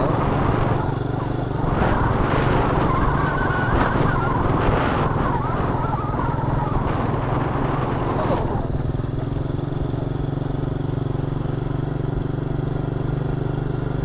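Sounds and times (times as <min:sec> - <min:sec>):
wind rush: 0:00.0 - 0:09.0
motorcycle engine running: 0:00.0 - 0:14.0.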